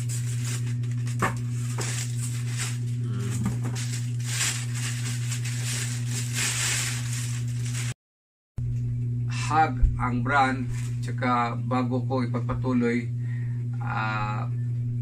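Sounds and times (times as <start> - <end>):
plastic and bubble wrap crinkling: 0.0 - 8.0
steady low hum: 0.0 - 8.0, 8.6 - 15.0.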